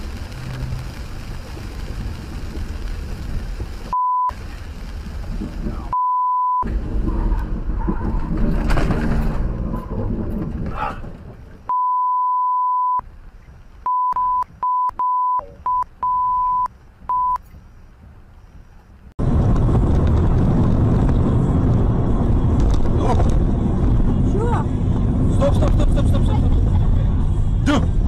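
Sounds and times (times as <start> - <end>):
car driving in heavy rain: 0.0 - 6.0, 19.2 - 28.0
censor bleep: 3.9 - 4.4, 6.0 - 6.6, 11.7 - 13.0, 13.8 - 17.4.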